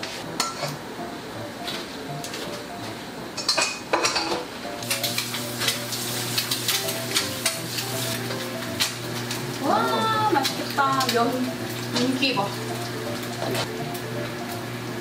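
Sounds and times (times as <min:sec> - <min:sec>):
dishes and utensils clinking: 0:00.3 - 0:00.8, 0:03.4 - 0:09.4
food sizzling in a pan: 0:04.8 - 0:15.0.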